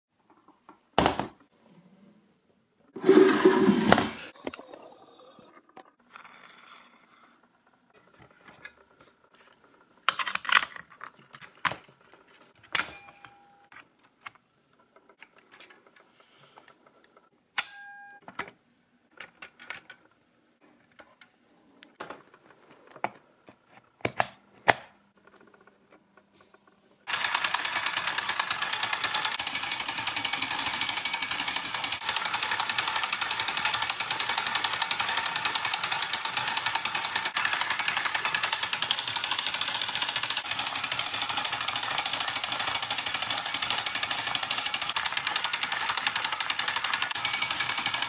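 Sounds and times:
film projector clattering: 27.0 - 48.0.

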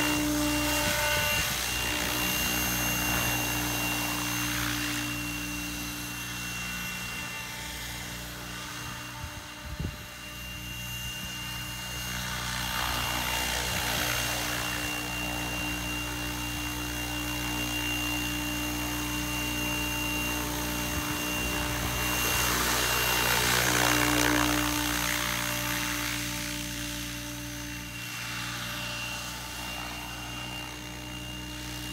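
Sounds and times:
rc helicopter hovering: 0.0 - 31.9.

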